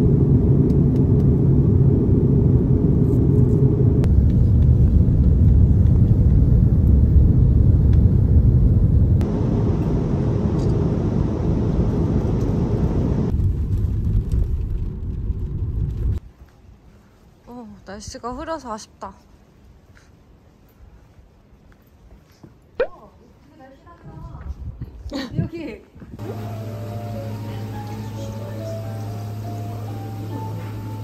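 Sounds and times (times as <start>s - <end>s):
airliner cabin rumble: 0.0s - 16.2s, 26.2s - 31.0s
car interior road rumble: 0.0s - 16.2s.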